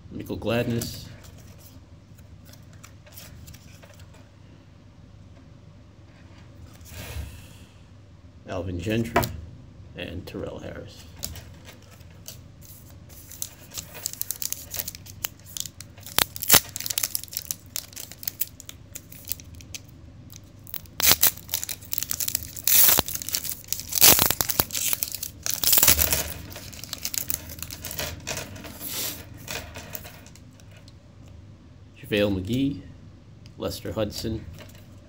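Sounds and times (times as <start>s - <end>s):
foil wrapper tearing and crinkling: 11.7s - 30.4s.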